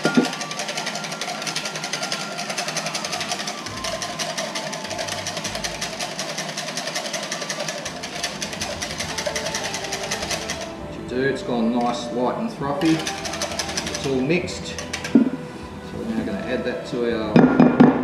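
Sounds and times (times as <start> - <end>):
whisk rattling against plastic jug: 0.0 - 10.7, 12.8 - 15.4.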